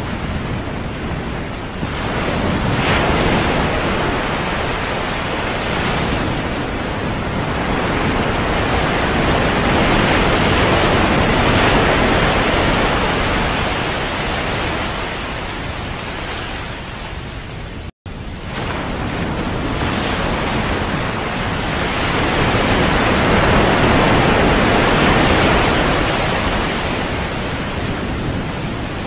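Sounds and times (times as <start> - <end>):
waves washing in: 0.0 - 29.0.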